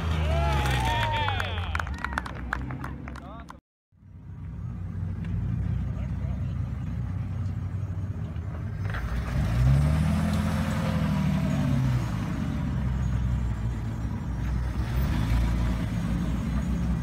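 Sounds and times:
jeep engine revving: 0:04.5 - 0:17.0.

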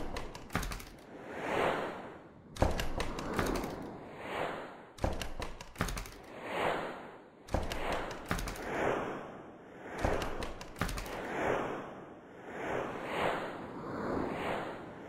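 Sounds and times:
sharp clicks: 0:00.0 - 0:01.1, 0:02.6 - 0:03.9, 0:05.0 - 0:06.3, 0:07.5 - 0:08.7, 0:10.0 - 0:11.3
whooshes: 0:00.0 - 0:15.0.

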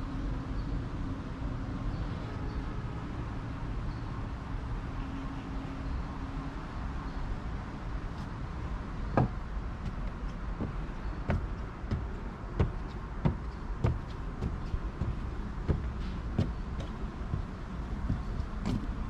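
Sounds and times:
footsteps climbing steps: 0:08.1 - 0:19.0.

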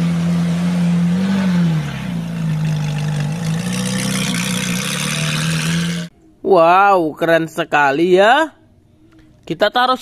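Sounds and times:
car engine at low revs: 0:00.0 - 0:06.1.

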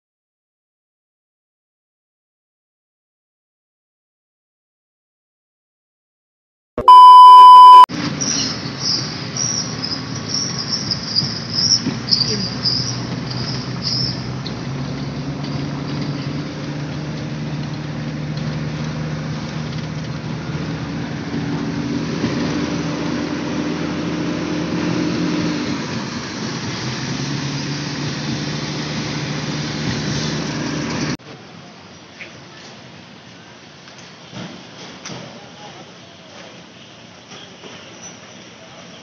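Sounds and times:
tyre and road noise: 0:07.9 - 0:39.0.

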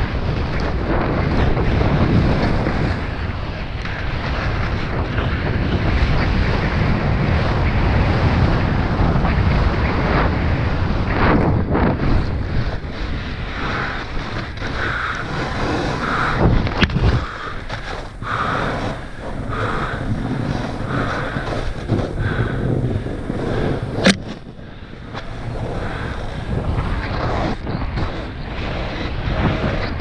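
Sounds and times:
wind buffeting microphone: 0:00.0 - 0:30.0
snowboard hissing through snow: 0:12.1 - 0:24.1, 0:25.0 - 0:29.8.

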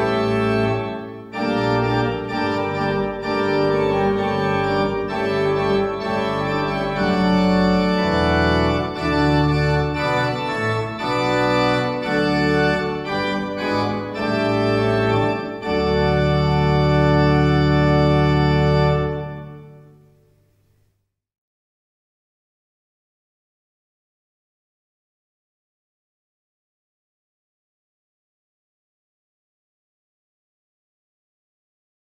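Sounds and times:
pipe organ playing chords: 0:00.0 - 0:20.2.

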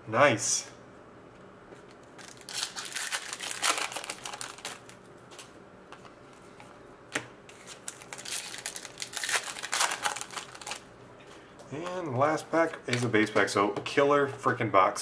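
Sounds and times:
cards rustling and clicking: 0:02.2 - 0:10.8.

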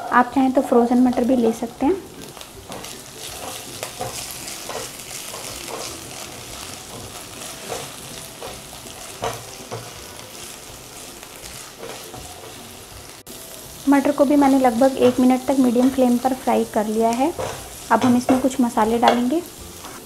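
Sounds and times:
peas sizzling in hot oil: 0:00.1 - 0:20.0
spatula scraping pan: 0:02.7 - 0:10.5, 0:11.4 - 0:12.8.

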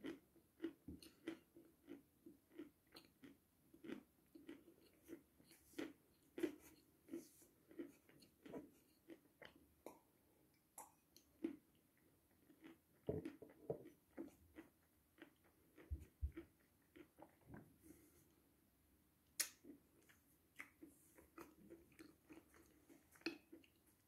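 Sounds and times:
person chewing chalk crunchily: 0:00.0 - 0:10.1, 0:19.4 - 0:24.0.

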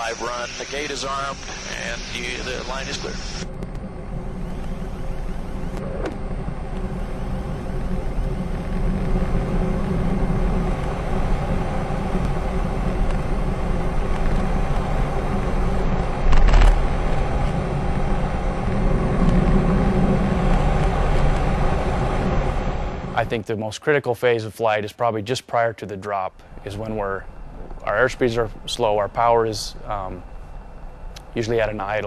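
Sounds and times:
heavy wind rush: 0:00.0 - 0:23.4
turboprop engine and propeller drone: 0:00.0 - 0:23.5, 0:25.6 - 0:32.0.

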